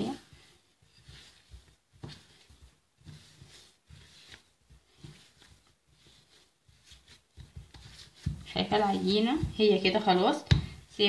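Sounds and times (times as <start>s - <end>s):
hands kneading dough in bowl: 0.0s - 11.0s
soft low thumps: 7.6s - 10.9s.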